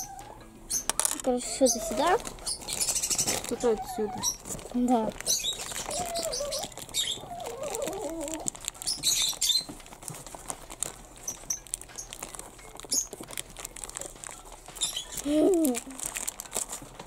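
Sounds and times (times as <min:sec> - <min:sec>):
plastic bag crinkling: 0:00.9 - 0:17.0.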